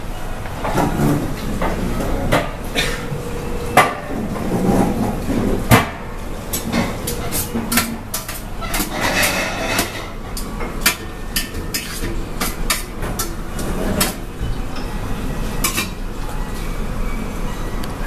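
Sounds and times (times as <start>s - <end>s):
dishes and utensils clinking: 0.6s - 16.8s
restaurant background din: 6.7s - 17.7s.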